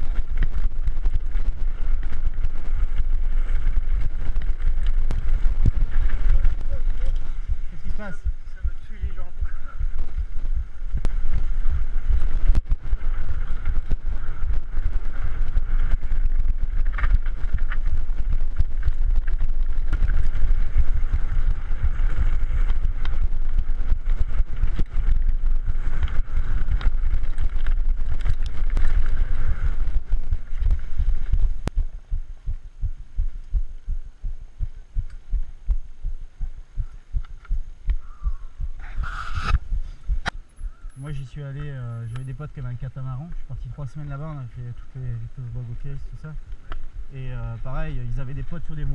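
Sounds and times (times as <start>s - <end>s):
bike tyres rumbling on gravel: 0.0s - 48.9s.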